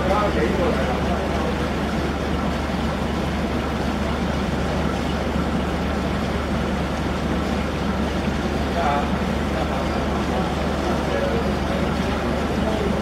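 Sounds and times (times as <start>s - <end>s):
boat engine humming: 0.0s - 13.0s
water wash: 0.0s - 13.0s.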